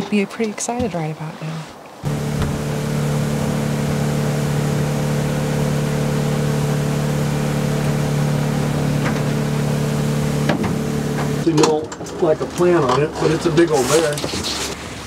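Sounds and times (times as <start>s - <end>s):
motorboat engine running: 2.0s - 11.5s.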